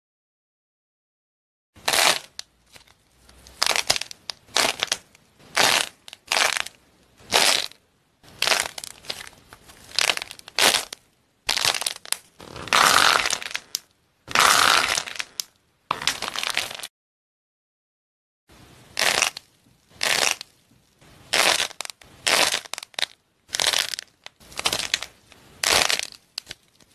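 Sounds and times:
fake fruit crunching and crackling: 0:01.8 - 0:16.9, 0:18.9 - 0:26.9.

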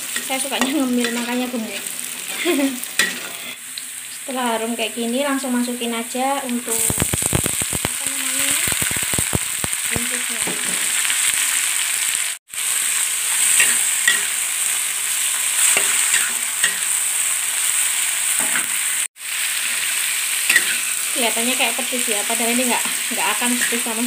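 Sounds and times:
vegetables sizzling in hot oil: 0:00.0 - 0:24.0
metal spatula scraping a wok: 0:00.1 - 0:03.6, 0:13.3 - 0:14.4, 0:15.3 - 0:17.0, 0:20.5 - 0:21.0.

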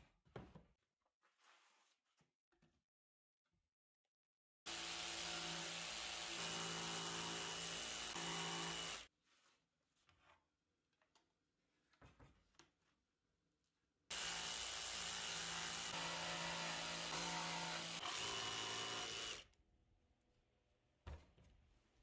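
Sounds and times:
jigsaw cutting wood: 0:04.7 - 0:09.1, 0:14.1 - 0:19.5.

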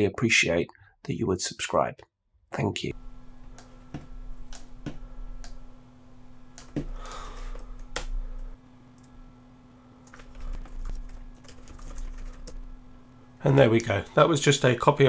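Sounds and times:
steady low hum: 0:02.8 - 0:15.0
computer keys clicking: 0:10.0 - 0:12.6.

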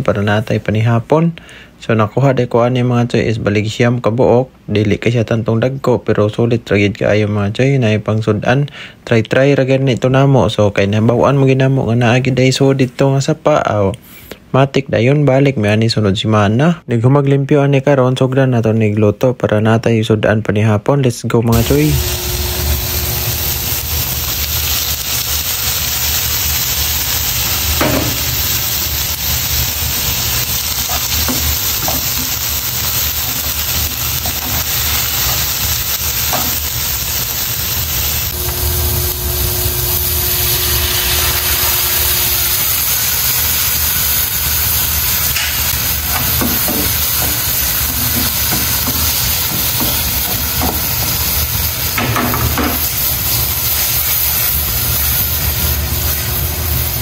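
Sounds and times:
food sizzling in a pan: 0:21.5 - 0:57.0
spatula tapping a pan: 0:45.4 - 0:51.2, 0:52.0 - 0:52.8.

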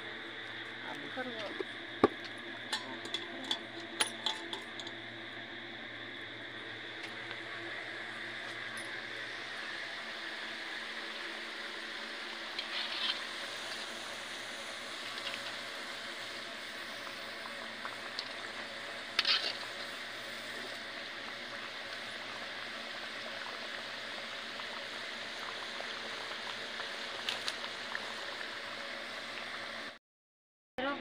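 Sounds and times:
oil sizzling: 0:06.6 - 0:29.9.

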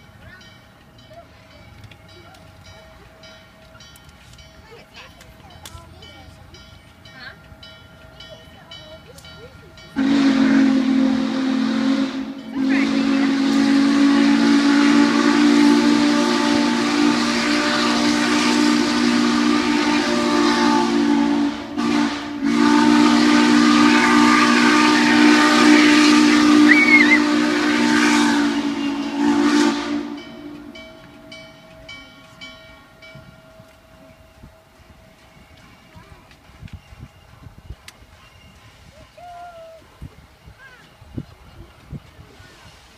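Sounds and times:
steam locomotive whistle blasts: 0:09.9 - 0:31.4
steam hissing: 0:36.5 - 0:42.9.

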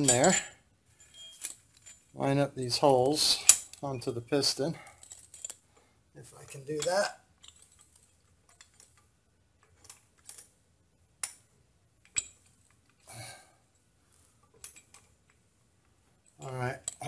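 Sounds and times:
light metal clicks and clinks: 0:00.0 - 0:02.2, 0:02.8 - 0:10.5, 0:14.4 - 0:15.4.

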